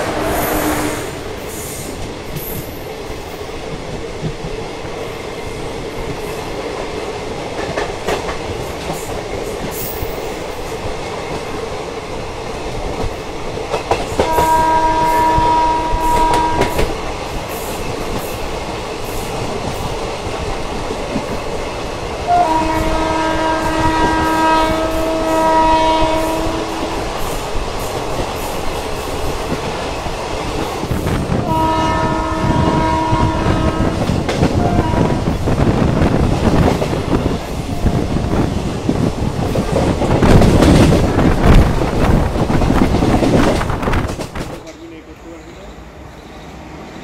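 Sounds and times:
train horn blasts: 0.0 - 1.3, 14.2 - 17.0, 22.3 - 27.2, 31.3 - 35.5
train rumble and wheel clatter: 0.0 - 47.0.

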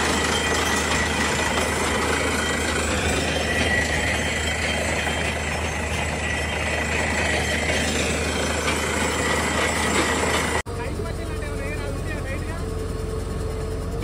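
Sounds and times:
drilling rig engine droning: 0.0 - 14.0
steady high whine: 0.0 - 14.0.

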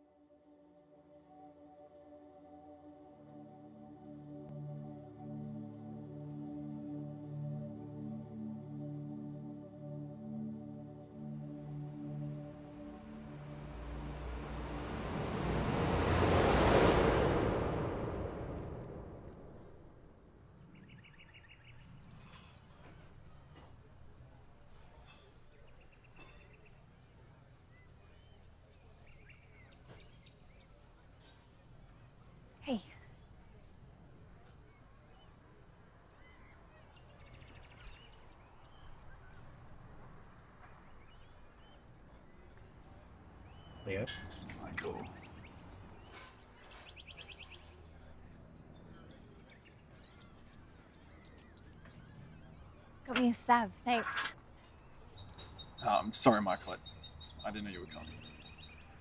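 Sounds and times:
low background ambience: 1.0 - 59.0
low background rumble: 12.7 - 20.6
faint birds chirping: 17.8 - 59.0
faint bird chirps: 24.8 - 27.0, 32.7 - 39.6.

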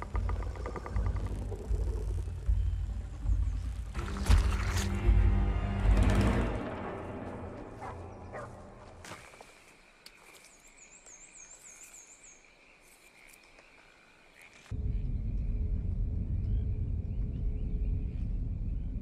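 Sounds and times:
high insect drone: 0.0 - 5.8
loud low rumble: 14.7 - 19.0.

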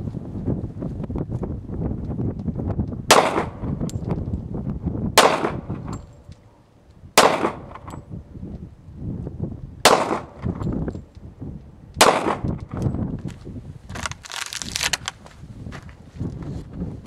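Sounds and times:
wind rumbling on microphone: 0.0 - 17.0
pistol shots: 3.1 - 3.7, 5.2 - 6.0, 7.2 - 8.0, 9.8 - 10.6, 12.0 - 12.7.

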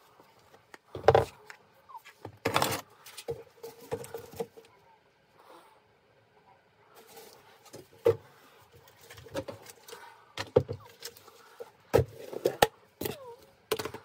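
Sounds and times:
plastic containers knocking: 10.4 - 11.1.

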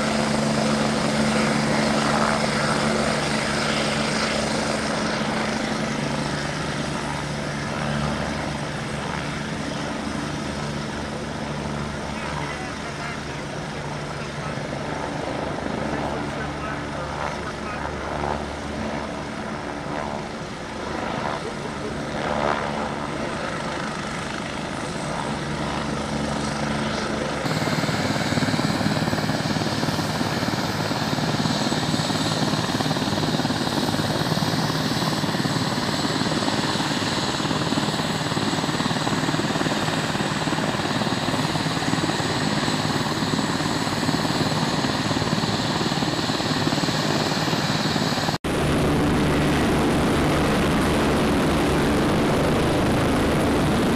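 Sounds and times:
helicopter engine whine and rotor: 0.0 - 53.9
rushing turbine noise: 0.0 - 53.9.

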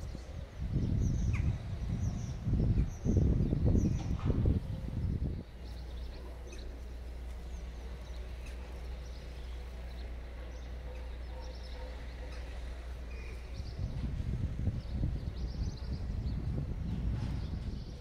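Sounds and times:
steady low rumble: 0.0 - 18.0
faint bird chirps: 8.4 - 13.8.

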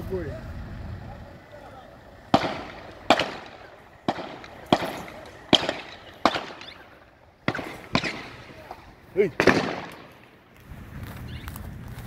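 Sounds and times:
distant gunshots: 2.2 - 10.6.

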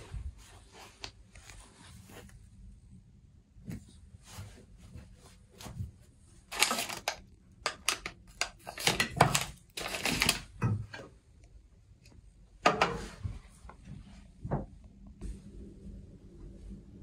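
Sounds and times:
rustling of handled objects: 4.2 - 11.0
objects clicking and knocking: 6.5 - 11.0.

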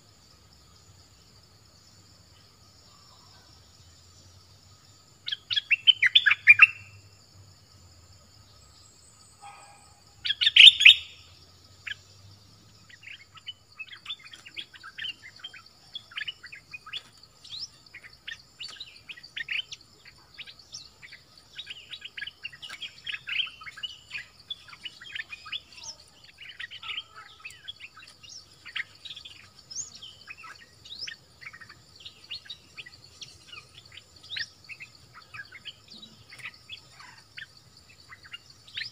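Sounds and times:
bird singing: 0.0 - 38.9
high insect hum: 0.0 - 38.9.

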